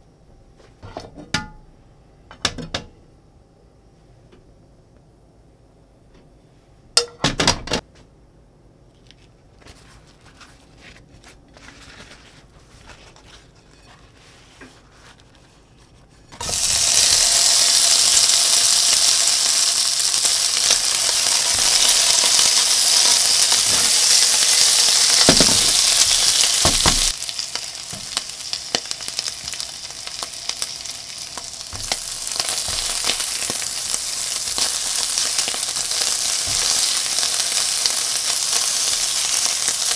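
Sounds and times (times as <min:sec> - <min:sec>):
fish sizzling in hot oil: 0:16.4 - 0:39.9.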